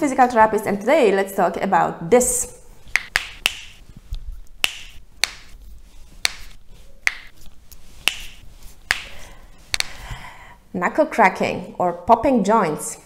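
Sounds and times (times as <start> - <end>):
knuckles cracking: 2.9 - 5.6, 6.2 - 10.0.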